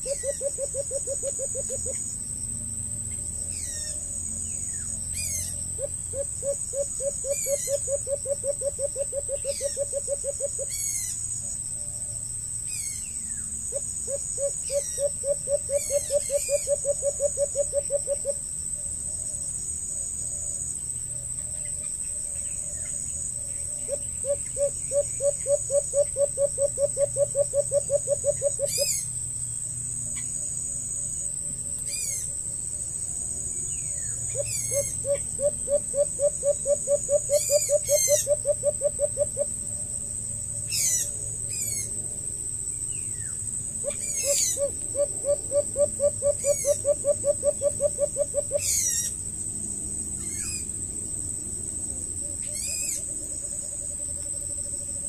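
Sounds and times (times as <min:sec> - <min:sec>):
bird low hooting calls: 0:00.0 - 0:02.1, 0:03.1 - 0:19.4, 0:21.2 - 0:29.2, 0:33.7 - 0:39.8, 0:43.8 - 0:49.2, 0:52.1 - 0:55.0
high insect buzz: 0:00.0 - 0:55.0.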